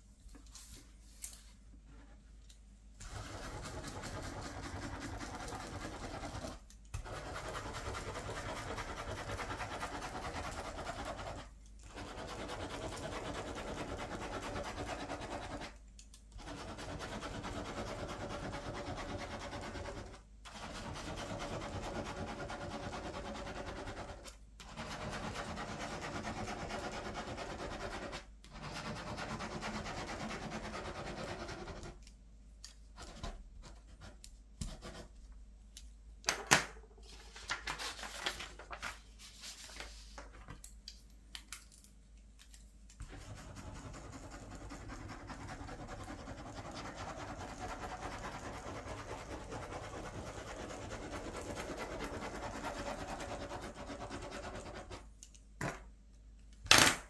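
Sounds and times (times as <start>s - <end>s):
pen scribbling on paper: 3.0s - 15.8s, 16.4s - 32.0s, 43.0s - 55.1s.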